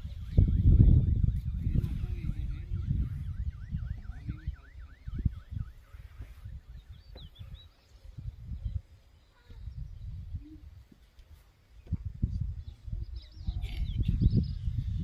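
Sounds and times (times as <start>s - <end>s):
faint wailing siren: 0.0s - 7.6s.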